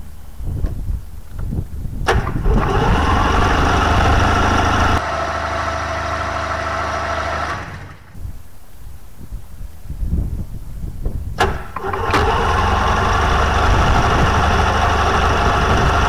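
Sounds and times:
two-stroke engine running: 0:02.2 - 0:08.2, 0:11.6 - 0:16.0.

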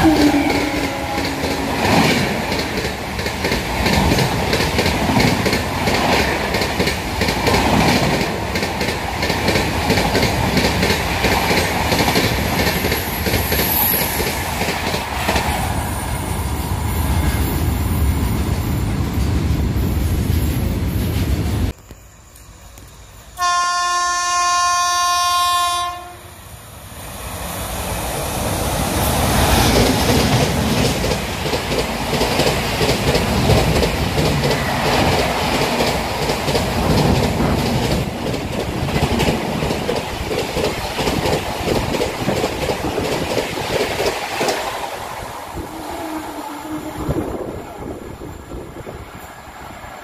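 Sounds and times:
locomotive horn: 0:00.0 - 0:01.9, 0:23.4 - 0:26.4
train passing at speed: 0:00.0 - 0:50.0.

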